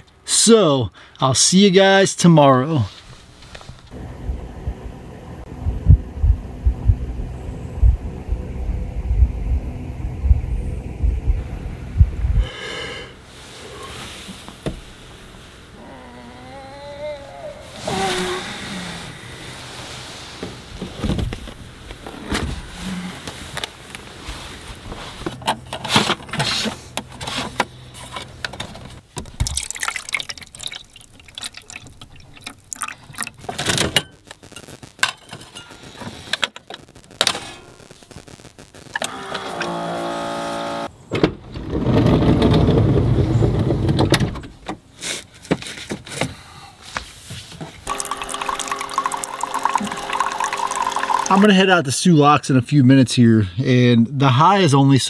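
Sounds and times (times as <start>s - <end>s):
coffee gushing into mug: 29.4s - 33.4s, 47.9s - 51.4s
handling knocks and rustles: 41.2s - 47.8s
coffee maker pump hum: 47.9s - 51.4s.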